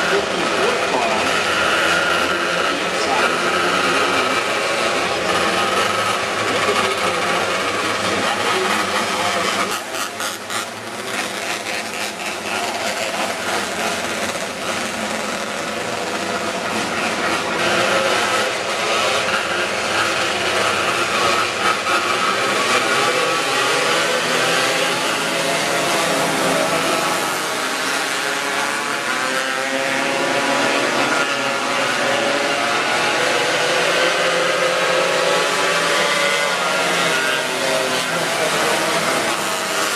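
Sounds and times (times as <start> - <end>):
racing car engines: 0.0 - 39.9.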